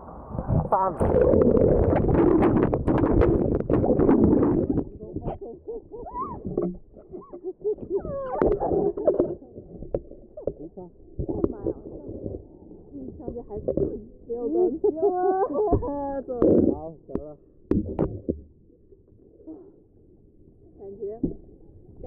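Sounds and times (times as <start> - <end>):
underwater water churning: 0.1 - 14.9
water splashing: 0.3 - 14.9
knocks underwater: 0.4 - 14.3, 15.7 - 18.6.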